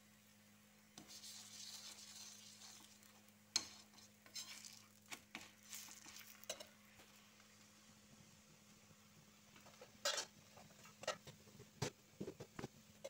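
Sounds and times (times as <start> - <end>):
faint sizzle: 0.0 - 13.0
spatula scraping and knocking pan: 1.0 - 6.7.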